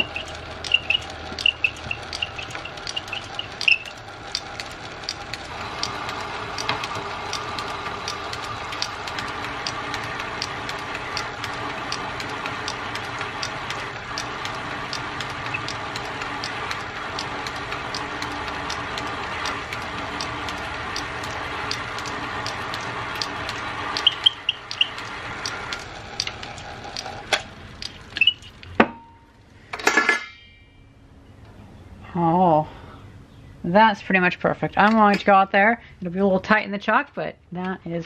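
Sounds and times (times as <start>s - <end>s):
lathe ticking: 0.0s - 28.8s
metal lathe motor hum: 0.0s - 28.8s.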